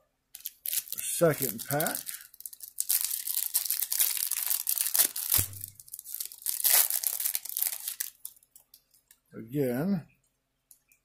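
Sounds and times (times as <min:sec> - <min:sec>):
wrapper tearing and crinkling: 0:00.4 - 0:08.5.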